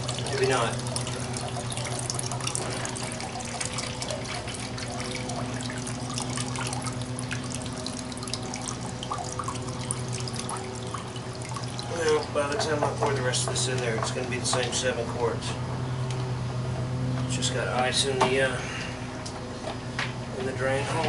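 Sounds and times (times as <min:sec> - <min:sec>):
water splashing into pitcher: 0:00.0 - 0:14.7.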